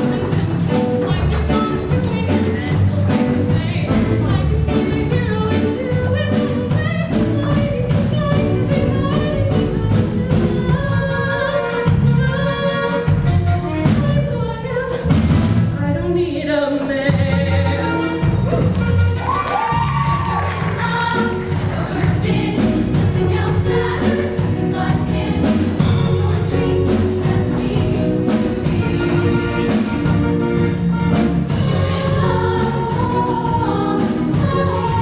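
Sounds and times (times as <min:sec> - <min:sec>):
upbeat instrumental accompaniment: 0:00.0 - 0:15.9, 0:16.8 - 0:35.0
choir singing: 0:20.4 - 0:35.0.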